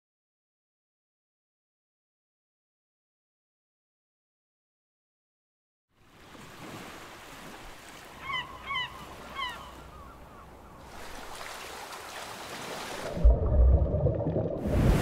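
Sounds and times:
wind: 0:05.9 - 0:15.0
sea waves: 0:06.0 - 0:15.0
gull calling: 0:08.1 - 0:10.8.

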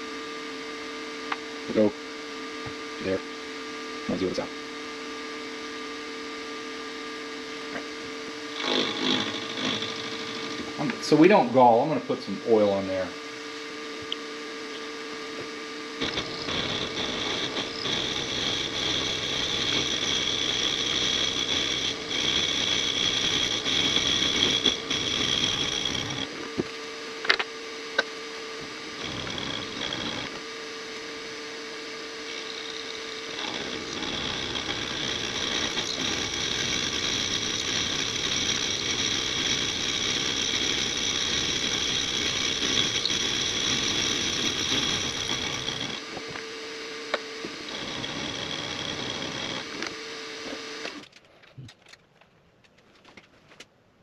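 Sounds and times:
milling machine spindle hum: 0:00.0 - 0:51.1
rough metal cutting noise: 0:07.5 - 0:13.0, 0:14.7 - 0:51.1.

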